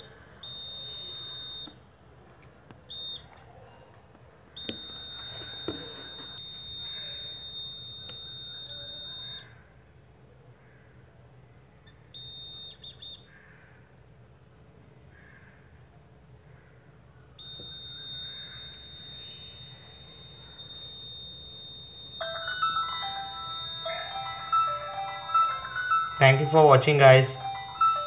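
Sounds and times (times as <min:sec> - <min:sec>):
piezo buzzer beeping: 0:00.0 - 0:01.8, 0:04.6 - 0:09.5, 0:12.2 - 0:13.0, 0:17.4 - 0:28.0.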